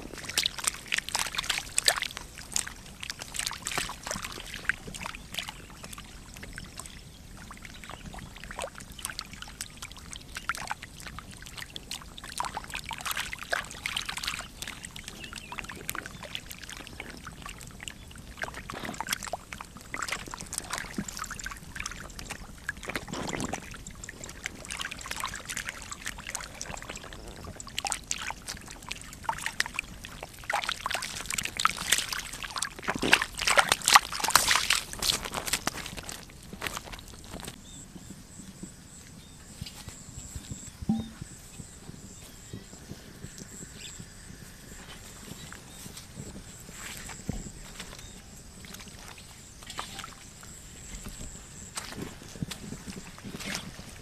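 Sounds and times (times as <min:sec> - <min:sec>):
fish splashing in water: 0:00.0 - 0:37.2.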